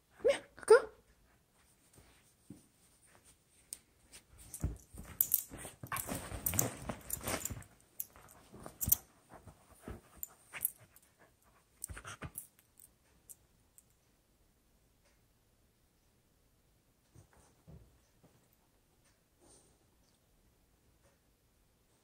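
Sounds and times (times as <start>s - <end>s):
dog moving on couch cushions: 4.4s - 7.7s.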